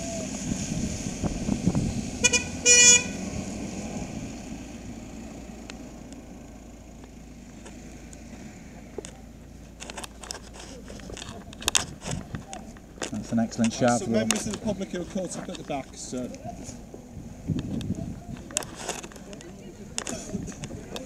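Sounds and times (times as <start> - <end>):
rumble of slow-moving vehicles: 0.0 - 21.0
vehicle horn: 2.2 - 3.2.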